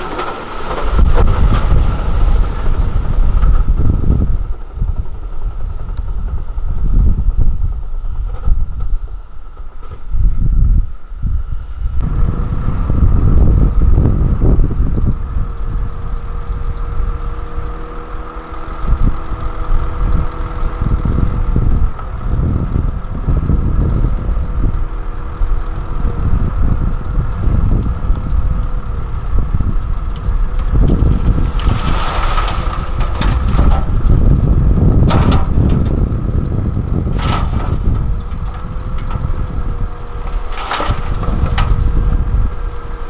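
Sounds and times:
soil sliding out of truck bed: 0.0s - 3.6s, 30.7s - 43.0s
truck diesel engine running: 0.0s - 43.0s
wind gusting on microphone: 0.0s - 43.0s.

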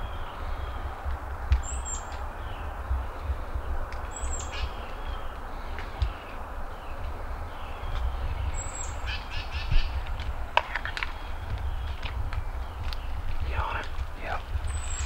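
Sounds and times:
low rumble on microphone: 0.0s - 15.0s
bird calling: 1.6s - 10.0s.

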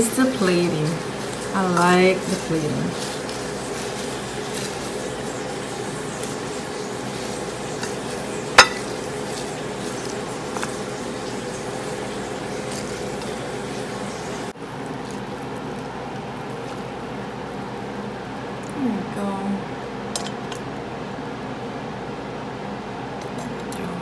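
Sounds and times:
steady background hum: 0.0s - 24.0s
dishes clinking: 8.5s - 9.0s.

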